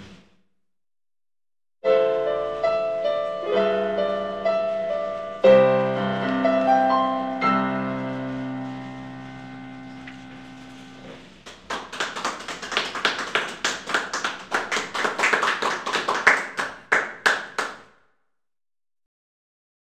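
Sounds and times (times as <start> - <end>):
electronic keyboard chord: 1.8 - 11.2
small group applauding: 11.3 - 17.9.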